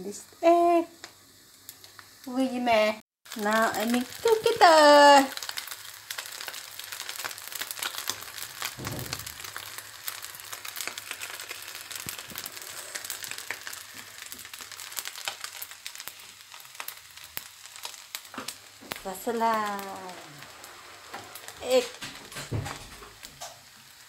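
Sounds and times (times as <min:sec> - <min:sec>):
noodles sizzling in a pan: 0:00.0 - 0:24.0
dull thump: 0:08.8 - 0:09.3.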